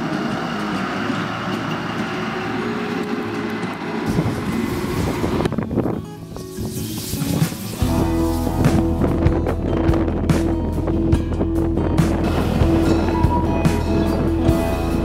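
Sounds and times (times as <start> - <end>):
locomotive running: 0.0 - 15.0
steam hissing from locomotive: 6.3 - 8.0.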